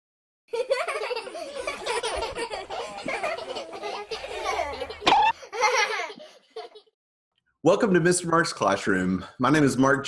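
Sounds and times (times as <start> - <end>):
children laughing and giggling: 0.5 - 7.0.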